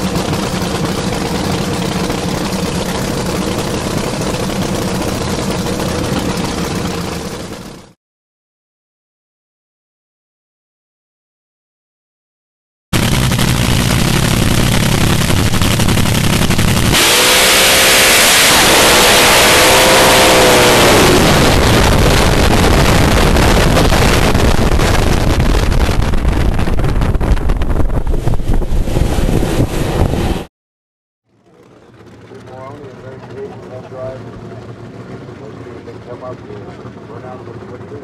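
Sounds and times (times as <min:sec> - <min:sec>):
dragster engine roaring: 0:00.0 - 0:08.0, 0:13.0 - 0:30.5, 0:31.3 - 0:38.0
wind noise: 0:18.6 - 0:30.5.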